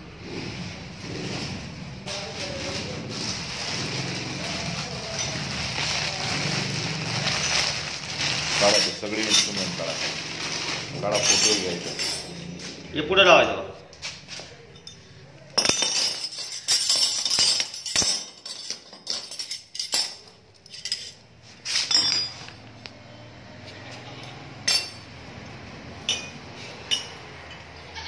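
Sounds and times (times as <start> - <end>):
metal rods clinking: 4.0 - 12.8, 14.1 - 22.6, 24.2 - 25.1, 26.0 - 27.7.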